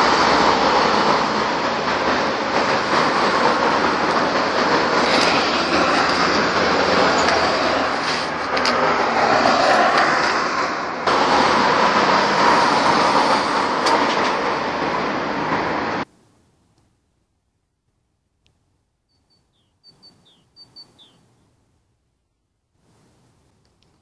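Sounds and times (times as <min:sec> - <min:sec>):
street traffic rumble: 0:00.0 - 0:17.3
faint clicks: 0:23.6 - 0:24.0.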